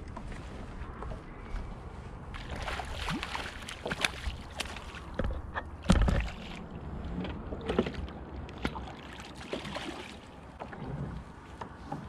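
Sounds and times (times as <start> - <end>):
fish splashing at the surface: 2.4 - 5.2, 8.6 - 10.4.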